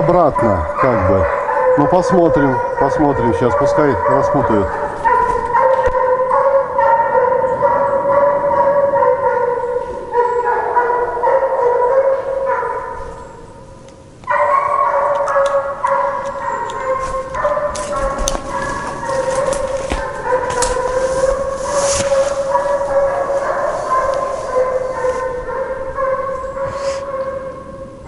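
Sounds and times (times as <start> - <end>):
hounds baying: 0.0 - 13.6, 14.2 - 27.8.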